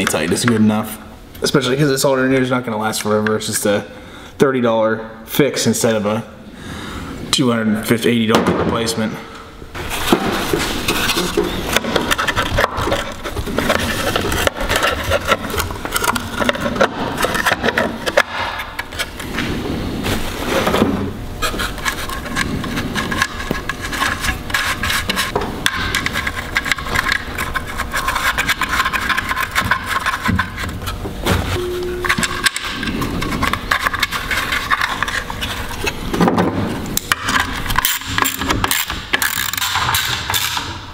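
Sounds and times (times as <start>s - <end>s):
plastic scraping and clicking on metal: 10.9s - 19.2s, 21.4s - 31.0s, 32.0s - 36.0s.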